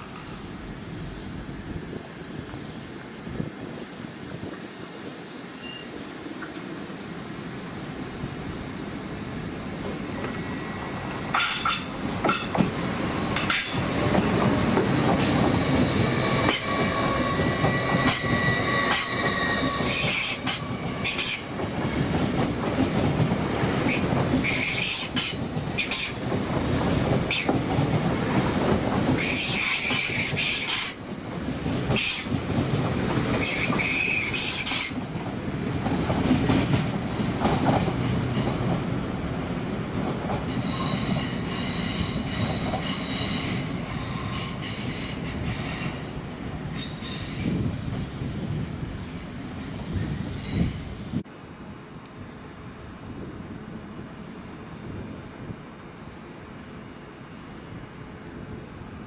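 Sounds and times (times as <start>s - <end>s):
electric train rumbling past: 0.0s - 59.0s
train wheels squealing: 5.5s - 6.1s, 13.3s - 21.5s, 23.9s - 26.2s, 29.2s - 31.0s, 33.4s - 35.0s, 35.8s - 49.0s, 49.6s - 51.2s.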